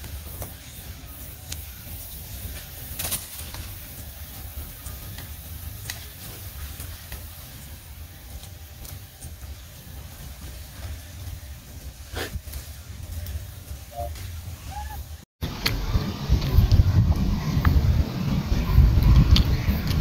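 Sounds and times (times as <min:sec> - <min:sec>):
wind on microphone: 0:14.7 - 0:20.0.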